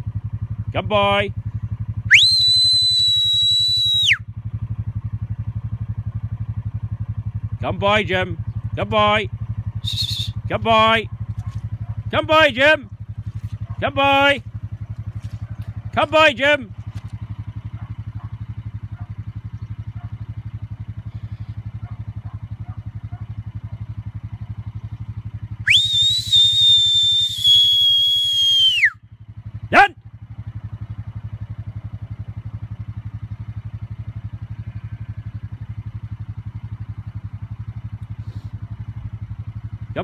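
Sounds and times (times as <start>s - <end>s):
herding whistle: 2.0s - 4.3s, 9.8s - 10.4s, 25.6s - 29.0s
steady low rumble: 4.2s - 25.8s.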